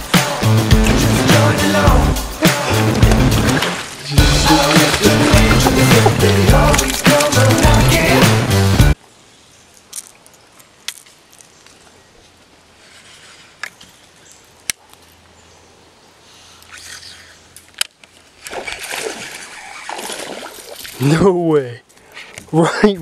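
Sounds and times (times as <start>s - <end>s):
creekside background: 0.0s - 23.0s
water noise: 0.7s - 9.0s, 18.2s - 21.2s.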